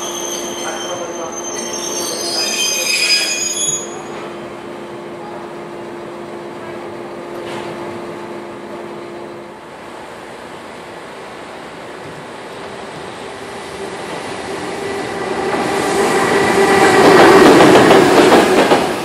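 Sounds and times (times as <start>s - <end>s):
train wheels squealing on rails: 0.0s - 4.4s.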